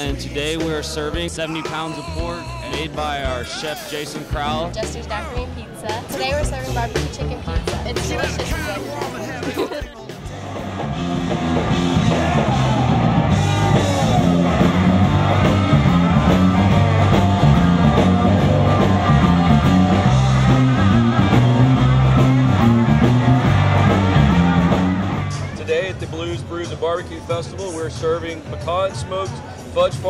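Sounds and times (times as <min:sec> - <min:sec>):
man singing: 0:00.0 - 0:04.6
drum beat: 0:00.0 - 0:25.5
rock band playing: 0:00.0 - 0:26.8
bass guitar: 0:00.0 - 0:28.2
electric guitar: 0:09.4 - 0:25.6.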